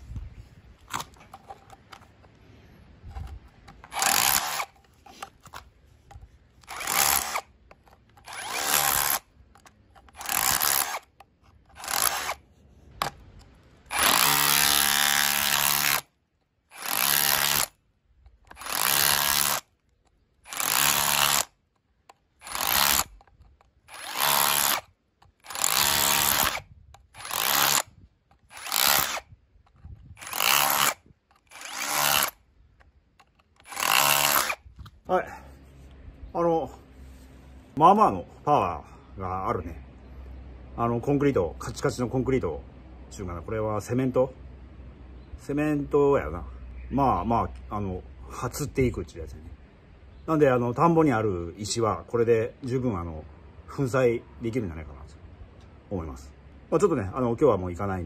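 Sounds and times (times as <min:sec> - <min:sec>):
drill bit scraping concrete: 0:03.0 - 0:13.2, 0:13.8 - 0:16.1, 0:16.7 - 0:32.4, 0:33.2 - 0:35.0
hammer drill chipping concrete: 0:03.9 - 0:04.7, 0:06.7 - 0:07.5, 0:08.2 - 0:09.2, 0:10.2 - 0:11.0, 0:11.8 - 0:12.4, 0:13.9 - 0:16.0, 0:16.7 - 0:17.7, 0:18.5 - 0:19.6, 0:20.5 - 0:21.5, 0:22.4 - 0:23.1, 0:23.9 - 0:24.8, 0:25.4 - 0:26.6, 0:27.2 - 0:27.8, 0:28.5 - 0:29.2, 0:30.2 - 0:32.3, 0:33.7 - 0:34.6.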